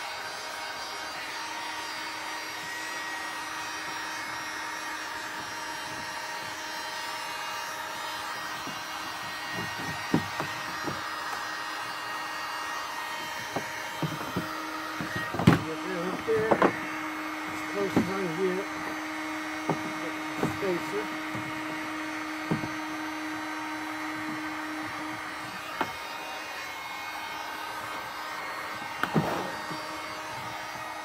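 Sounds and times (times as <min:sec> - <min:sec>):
heat gun fan blowing: 0:00.0 - 0:31.0
plastic knocks and taps: 0:13.3 - 0:16.8, 0:19.6 - 0:20.6, 0:22.4 - 0:22.8.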